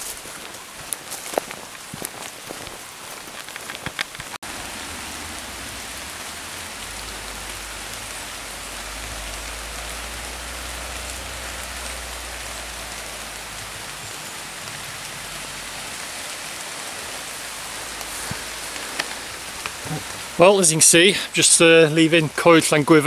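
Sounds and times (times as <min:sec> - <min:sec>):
footsteps on gravel: 0:00.0 - 0:04.4, 0:17.1 - 0:20.3
steady rain hissing: 0:00.0 - 0:23.0.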